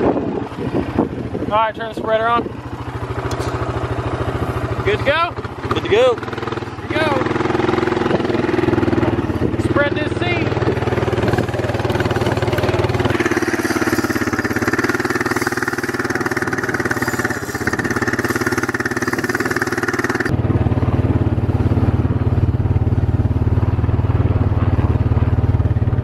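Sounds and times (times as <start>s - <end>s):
quad bike engine running: 0.0s - 26.0s
high whir: 6.6s - 20.4s.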